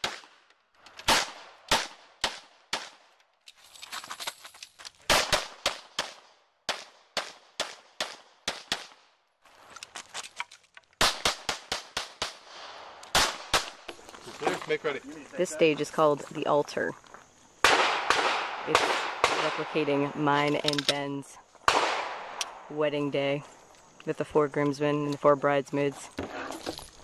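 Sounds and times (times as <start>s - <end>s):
pistol shots: 0.0s - 3.1s, 5.1s - 9.1s, 11.0s - 13.9s, 17.6s - 19.9s, 21.6s - 22.7s.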